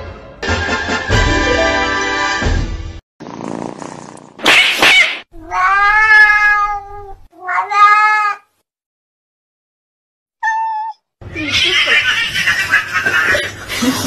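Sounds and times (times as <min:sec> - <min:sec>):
cat meowing: 0:04.9 - 0:08.5, 0:10.4 - 0:12.4.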